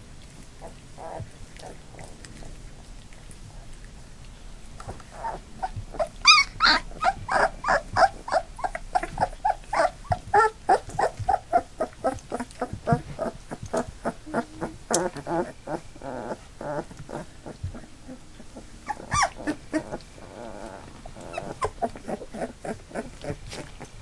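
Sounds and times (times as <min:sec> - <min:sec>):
puppies whining and yelping: 0:00.6 - 0:02.5, 0:04.8 - 0:24.0
puppy squealing: 0:05.2 - 0:23.4.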